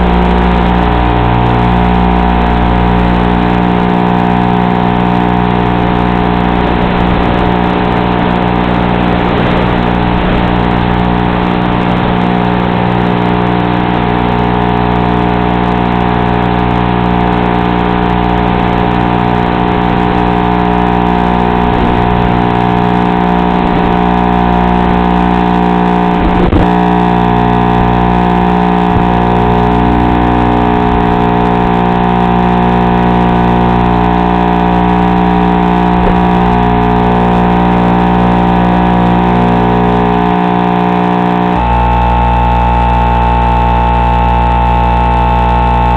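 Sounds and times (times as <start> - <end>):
electric motors and propellers buzzing: 0.0 - 45.9.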